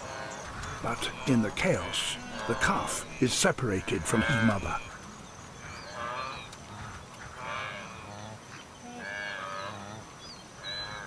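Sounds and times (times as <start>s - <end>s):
wildebeest bleating calls: 0.0s - 8.2s
low grunts from herd: 0.6s - 4.9s.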